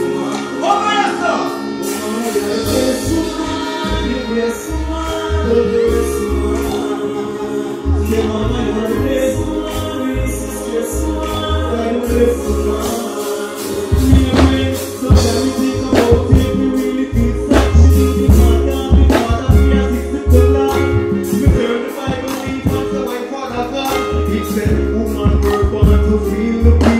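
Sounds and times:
live concert music: 0.0s - 26.9s
person singing into a microphone: 0.0s - 26.9s
heavy bass line and beat: 13.9s - 26.9s.

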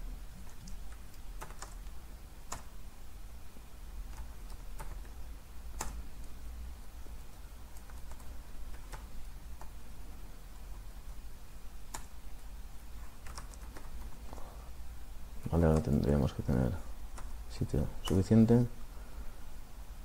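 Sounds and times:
low steady hum: 0.0s - 20.0s
computer keyboard typing: 0.4s - 2.7s, 4.0s - 6.4s, 7.2s - 9.8s, 11.9s - 12.2s, 13.0s - 14.2s, 15.4s - 16.1s, 17.1s - 17.4s, 18.1s - 18.3s.

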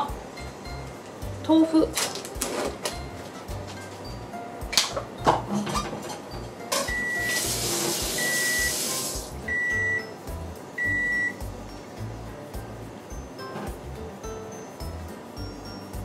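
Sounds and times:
grill beeping: 2.5s - 16.0s
loud hiss: 7.2s - 9.5s.

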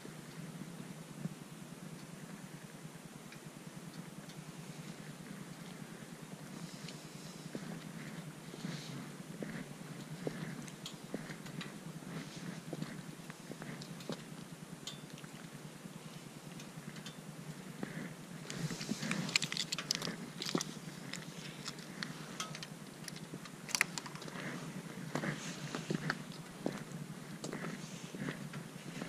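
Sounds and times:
camera handling clicks and scrapes: 18.8s - 21.9s.

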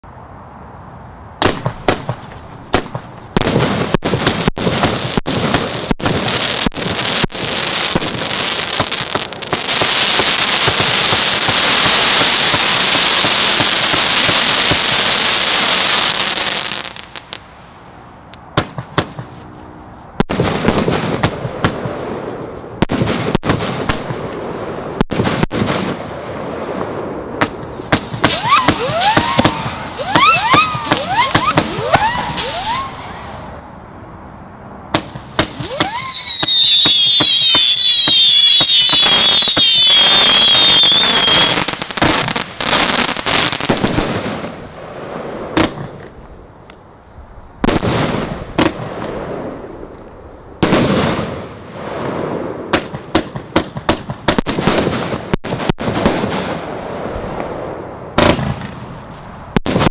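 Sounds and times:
firework launch shots and bursts: 1.4s - 17.3s, 18.5s - 19.4s, 20.2s - 33.5s, 34.9s - 46.2s, 47.6s - 49.6s, 50.6s - 59.9s
firework hiss: 27.6s - 33.0s, 35.1s - 43.7s
rising firework whistles: 27.7s - 33.6s, 35.4s - 44.0s.

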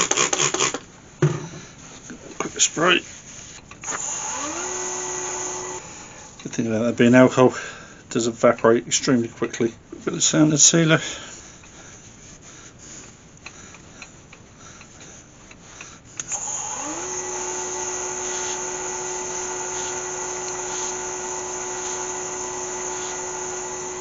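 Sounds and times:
cloth rubbing: 0.4s - 3.7s, 9.9s - 16.2s, 18.2s - 18.8s, 19.4s - 22.2s
lathe motor whine: 3.9s - 6.0s, 16.2s - 24.0s.

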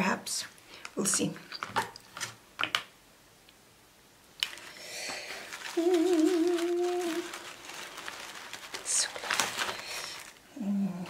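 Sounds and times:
tissue paper crinkling: 4.4s - 10.5s
person humming: 5.5s - 7.5s, 10.5s - 11.0s.

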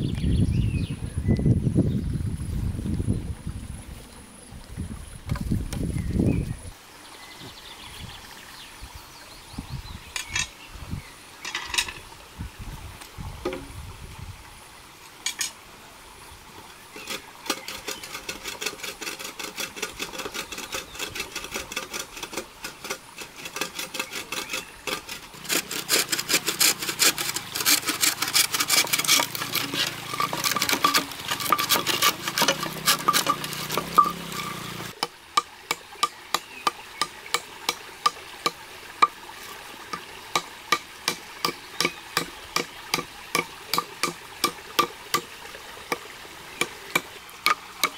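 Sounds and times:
hatchet knocking on bamboo: 13.4s - 13.7s, 39.9s - 45.3s, 46.6s - 47.9s
hand saw cutting bamboo: 17.0s - 39.2s, 39.9s - 45.3s, 45.9s - 47.9s.

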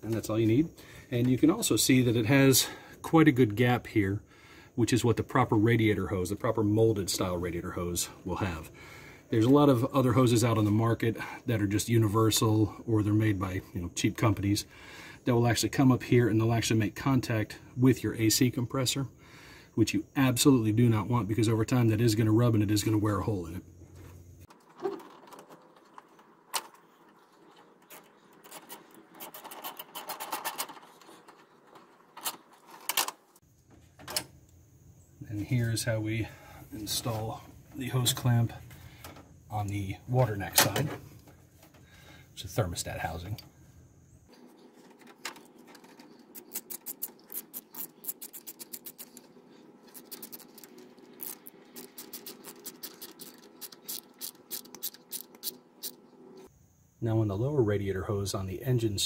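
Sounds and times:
socket ratchet clicking: 51.2s - 56.0s.

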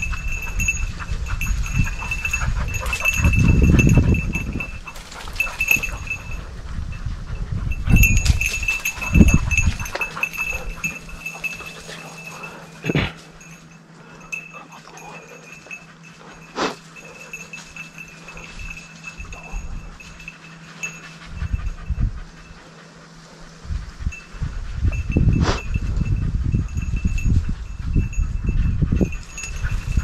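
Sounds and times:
heavy panting breaths: 0.0s - 30.0s.

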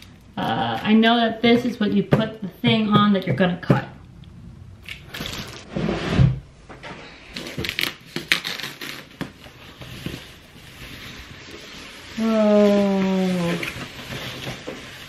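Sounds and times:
packaging rustling and crinkling: 4.8s - 5.7s, 7.3s - 15.0s.

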